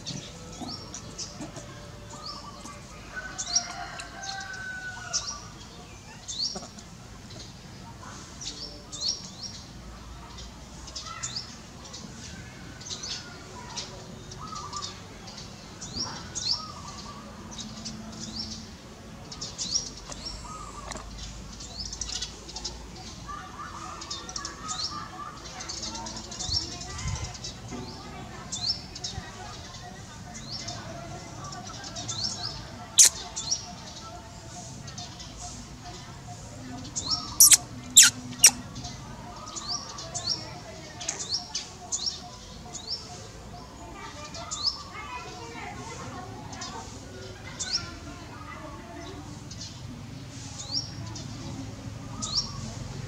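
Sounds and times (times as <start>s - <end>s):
small birds chirping: 0.0s - 53.0s
lower bird calls: 33.0s - 33.6s, 37.0s - 38.7s.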